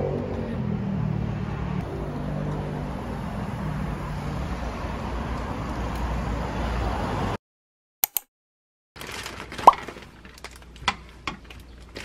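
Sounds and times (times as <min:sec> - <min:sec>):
street traffic noise: 0:00.0 - 0:07.4.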